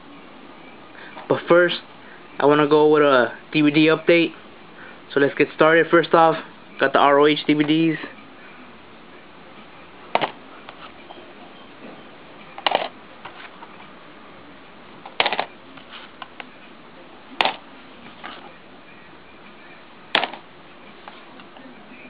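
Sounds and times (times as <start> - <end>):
plastic cases clacking: 12.6 - 13.4, 15.1 - 15.6, 20.2 - 20.4.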